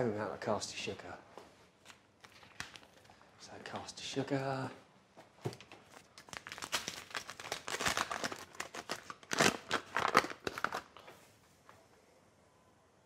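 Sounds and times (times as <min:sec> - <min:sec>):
paper bag tearing and crinkling: 0:06.3 - 0:10.8.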